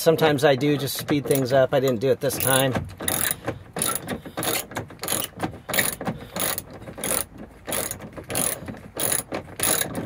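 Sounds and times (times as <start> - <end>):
socket ratchet clicking: 2.4 - 10.0.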